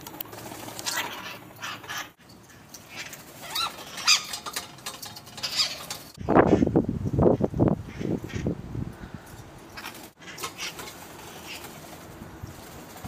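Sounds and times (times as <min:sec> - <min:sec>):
parakeets calling shrilly: 0:00.4 - 0:06.7, 0:09.6 - 0:11.9.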